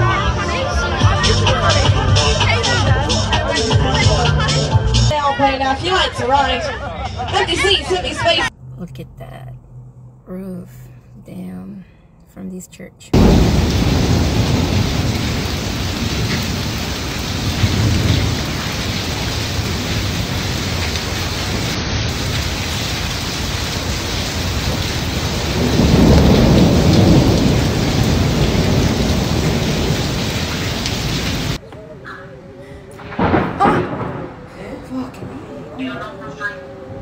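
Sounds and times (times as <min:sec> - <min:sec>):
deep rumble of thunder: 0:13.2 - 0:31.6, 0:33.0 - 0:36.2
heavy rain pouring: 0:13.2 - 0:31.6, 0:33.0 - 0:37.0.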